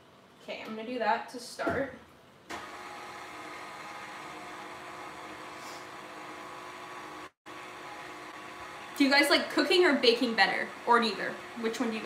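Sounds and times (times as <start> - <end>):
electric stand mixer running: 2.5 - 12.0.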